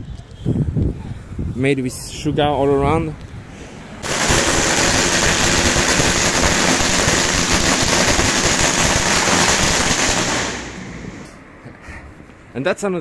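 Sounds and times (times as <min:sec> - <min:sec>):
firecrackers popping: 0:04.0 - 0:11.3.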